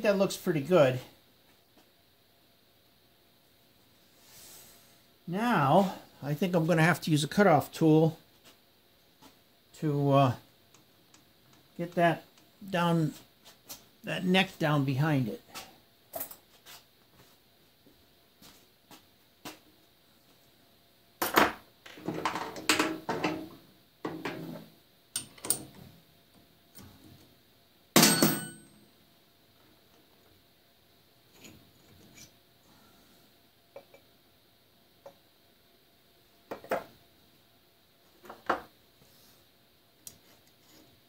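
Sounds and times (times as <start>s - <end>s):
metal tools clinking: 28.0s - 28.7s.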